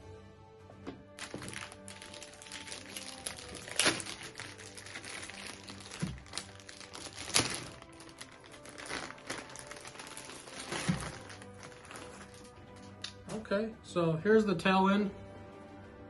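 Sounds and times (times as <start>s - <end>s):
quiet background music: 0.0s - 16.0s
toy packaging rustling and crinkling: 1.2s - 12.9s.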